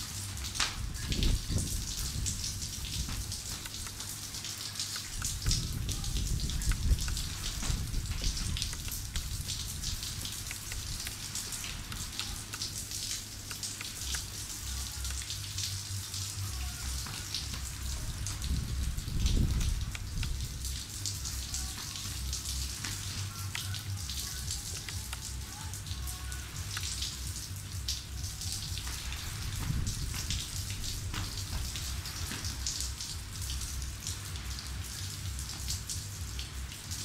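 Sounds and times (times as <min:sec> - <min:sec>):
light rain patter: 0:00.0 - 0:37.0
low rumble: 0:05.2 - 0:12.2, 0:14.0 - 0:22.8.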